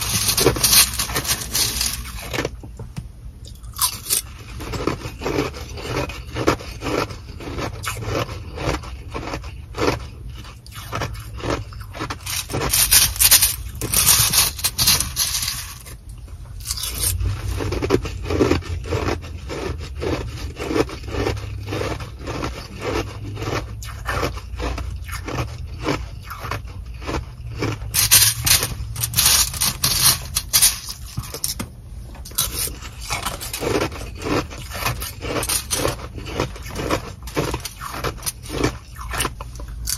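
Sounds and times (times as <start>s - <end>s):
ice crunching: 0.0s - 2.5s, 10.8s - 16.0s, 24.2s - 31.6s, 32.3s - 39.9s
plastic spoon scraping ice: 0.0s - 2.6s, 3.8s - 31.6s, 32.2s - 39.9s.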